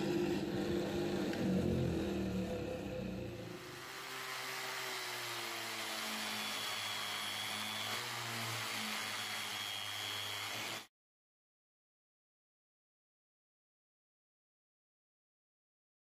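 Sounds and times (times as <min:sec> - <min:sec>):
drill grinding metal: 0:00.0 - 0:10.9.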